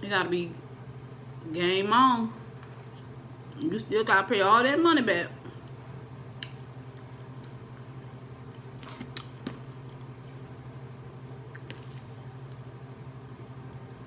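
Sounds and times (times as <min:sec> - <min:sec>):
steady low hum: 0:00.0 - 0:14.0
person chewing food: 0:02.6 - 0:03.6, 0:05.6 - 0:14.0.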